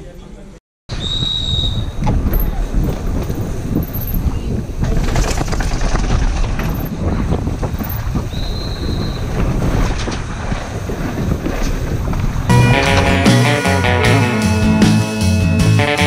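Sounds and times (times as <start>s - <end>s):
wind buffeting microphone: 0.9s - 12.5s
bike rattling over bumps: 1.9s - 12.5s
brief high tone: 12.5s - 16.0s.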